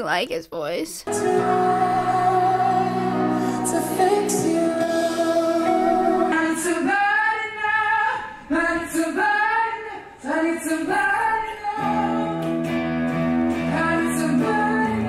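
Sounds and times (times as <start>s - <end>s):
sustained piano chords: 1.1s - 6.8s.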